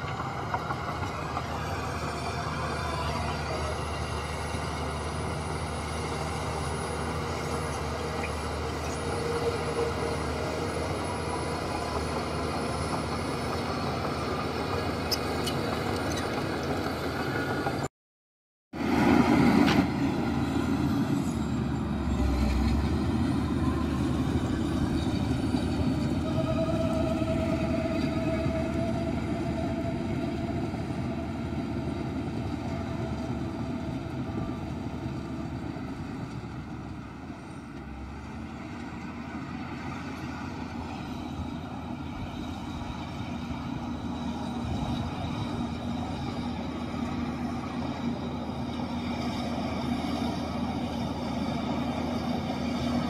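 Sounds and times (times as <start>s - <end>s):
heavy machinery diesel engines running: 0.0s - 17.9s, 18.8s - 53.0s.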